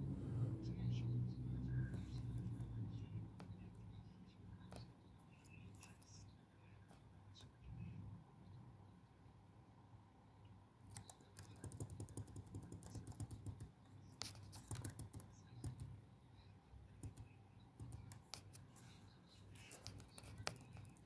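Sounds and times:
keyboard keys clicking: 0:10.9 - 0:13.7.

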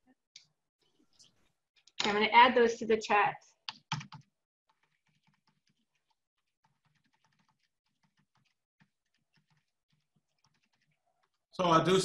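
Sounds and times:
faint keyboard typing: 0:03.6 - 0:11.4.

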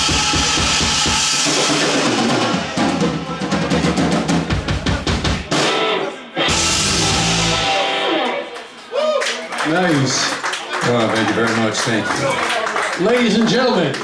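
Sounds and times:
rapid drum hits: 0:00.0 - 0:05.9, 0:06.5 - 0:07.8
live rock band playing: 0:00.0 - 0:08.8.

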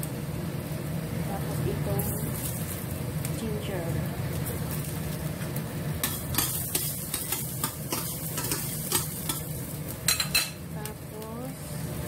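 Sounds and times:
garlic sizzling in oil: 0:00.0 - 0:12.0
low steady hum: 0:00.0 - 0:12.0
spatula scraping a pan: 0:06.0 - 0:09.5.

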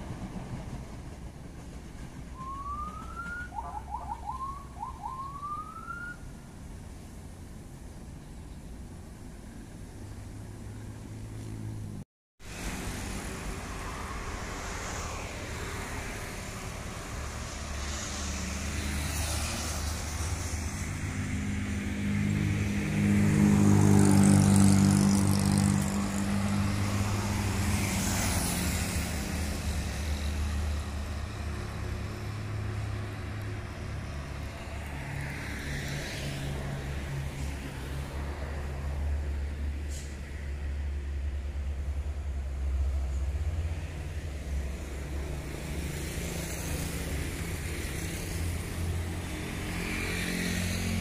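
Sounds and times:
traffic engine hum: 0:00.0 - 0:51.0
vehicle passing close: 0:10.4 - 0:40.4, 0:43.2 - 0:51.0.

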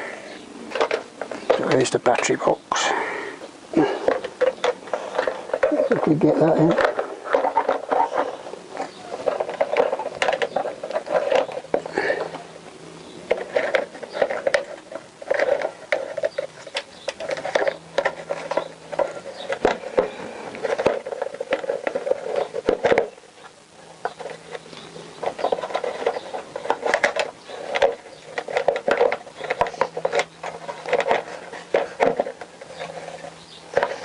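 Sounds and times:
plastic knocking and scraping on metal: 0:00.7 - 0:02.3, 0:03.9 - 0:12.4, 0:13.2 - 0:34.0.

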